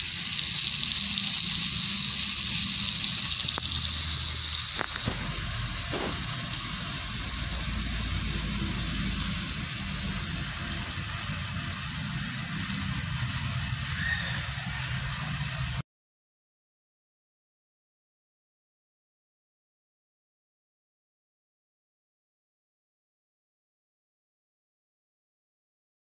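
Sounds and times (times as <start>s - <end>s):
small electric motor humming: 0.0s - 15.8s.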